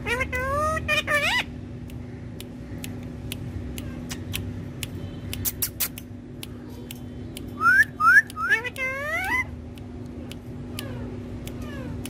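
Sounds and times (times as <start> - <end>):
parrot clicks: 1.4 - 12.0.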